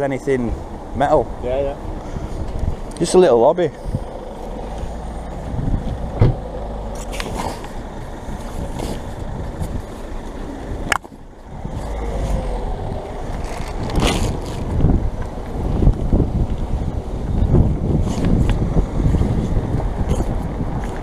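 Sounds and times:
wind rumble: 0.0 - 21.0.

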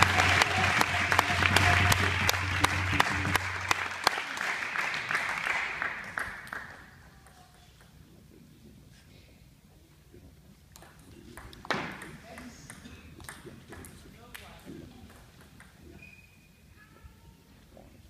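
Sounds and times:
audience applause: 0.0 - 7.1.

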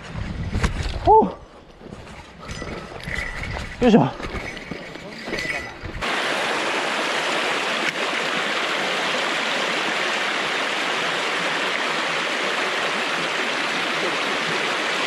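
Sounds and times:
stream water rushing: 3.9 - 15.0.

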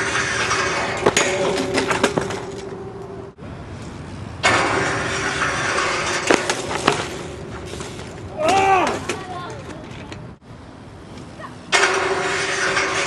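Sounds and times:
bike crashing onto concrete: 0.0 - 2.7, 4.4 - 9.6
loud impact: 4.4 - 7.8.

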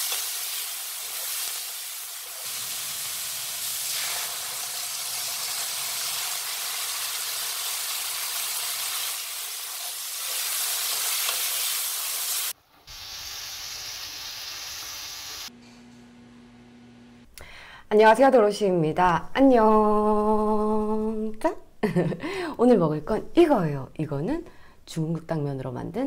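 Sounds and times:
food sizzling in a wok: 0.0 - 15.6.

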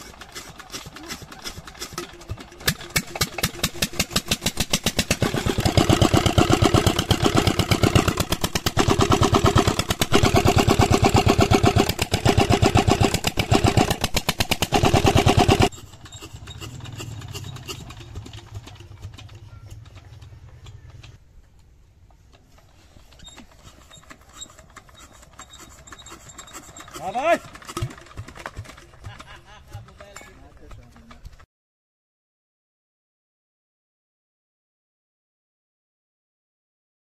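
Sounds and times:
diesel engine starting and running: 0.0 - 21.3, 22.4 - 29.8.

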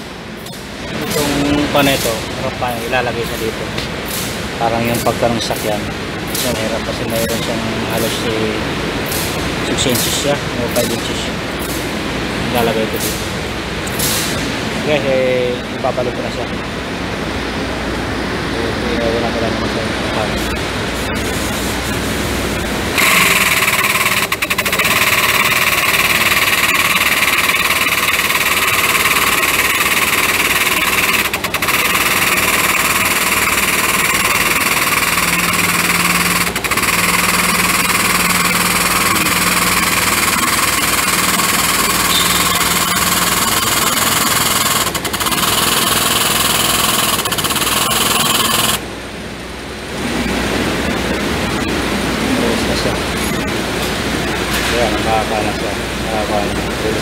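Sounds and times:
hydraulic pump running: 0.0 - 14.8, 20.3 - 48.9.

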